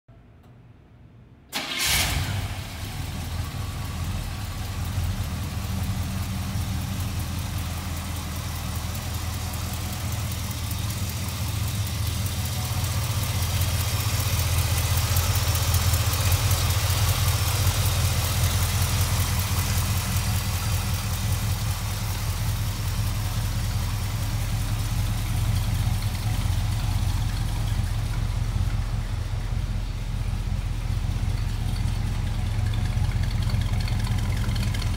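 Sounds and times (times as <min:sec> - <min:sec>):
engine starting and idling: 0:01.5 - 0:34.9.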